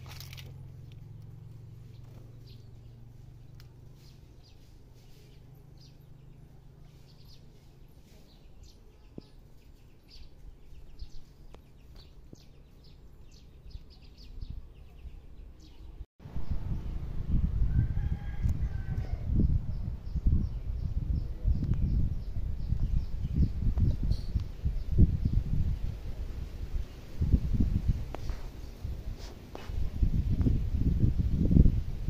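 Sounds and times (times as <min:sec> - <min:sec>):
small birds chirping: 0:00.0 - 0:17.2, 0:17.8 - 0:31.8
low rumble: 0:13.6 - 0:28.2.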